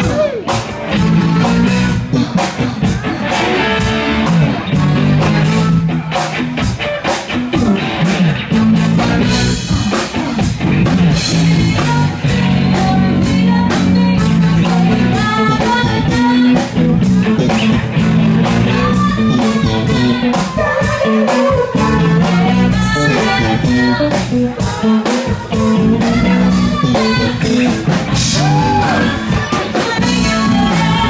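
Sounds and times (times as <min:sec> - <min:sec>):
drum kit beat: 0:00.0 - 0:31.0
guitar: 0:00.0 - 0:31.0
woman singing: 0:11.3 - 0:16.7, 0:18.4 - 0:31.0.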